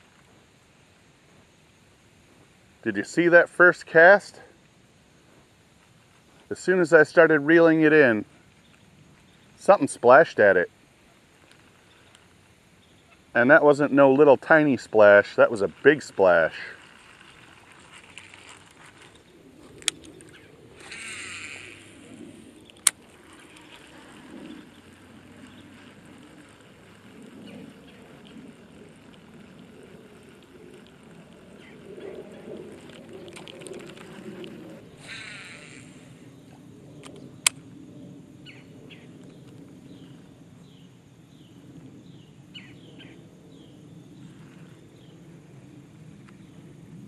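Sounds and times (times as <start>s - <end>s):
low outdoor rumble: 0.0s - 47.0s
bird chirping: 11.0s - 15.8s, 19.0s - 26.6s, 38.4s - 43.8s
fishing line whirring off reel: 11.3s - 38.0s.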